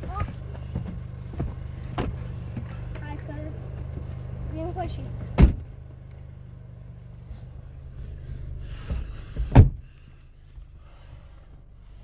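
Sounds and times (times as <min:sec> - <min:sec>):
steady low hum: 0:00.0 - 0:12.0
car door slamming: 0:05.2 - 0:05.8, 0:08.9 - 0:10.0.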